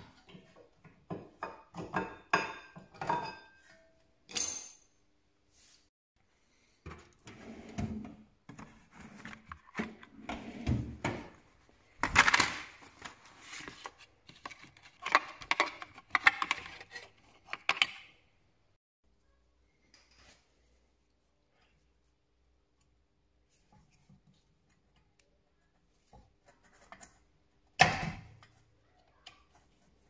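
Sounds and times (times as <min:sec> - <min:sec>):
rummaging for tools: 0:07.9 - 0:18.1.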